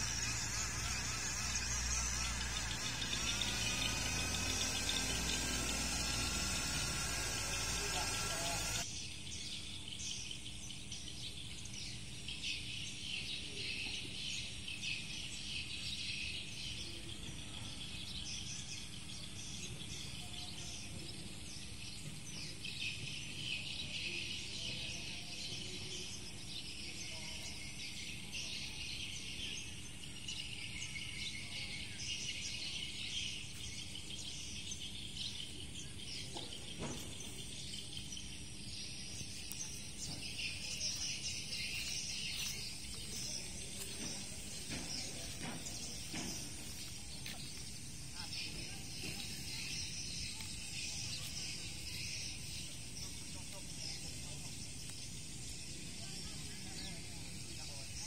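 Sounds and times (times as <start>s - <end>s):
insects chirring: 0.0s - 8.9s, 26.9s - 58.0s
birds chirping: 0.0s - 58.0s.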